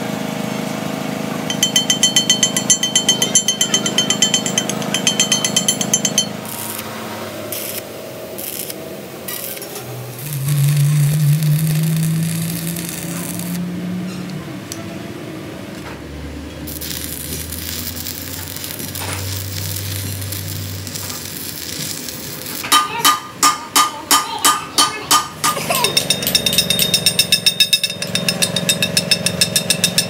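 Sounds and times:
low hum: 1.5s - 6.7s, 9.9s - 15.2s
hammer striking metal: 1.5s - 6.8s, 22.6s - 30.0s
welding arc crackling and sizzling: 1.7s - 13.7s, 16.6s - 23.3s.

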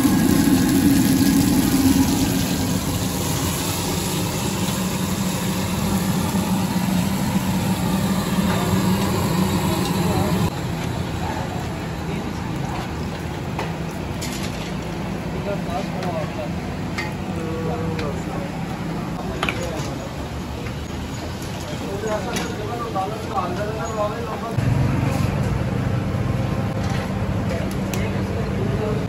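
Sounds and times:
low mechanical hum: 0.0s - 21.2s
street background noise: 0.0s - 29.0s.

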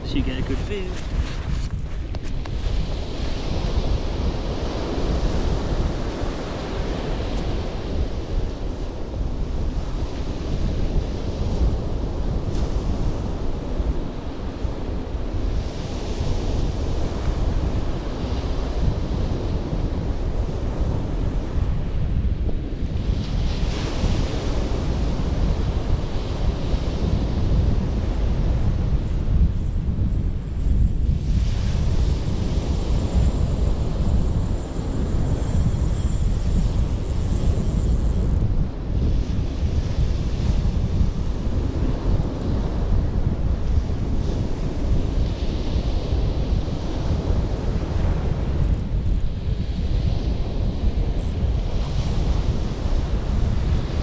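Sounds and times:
waves breaking on shingle beach: 0.0s - 3.4s
surf washing up pebbly beach: 0.0s - 7.2s
wind noise on microphone: 0.0s - 54.0s.

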